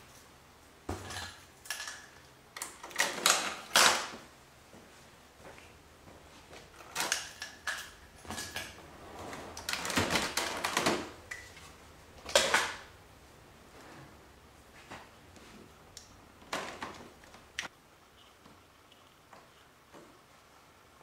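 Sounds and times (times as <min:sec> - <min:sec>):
plastic panels clattering: 0:09.5 - 0:13.0, 0:16.4 - 0:17.6.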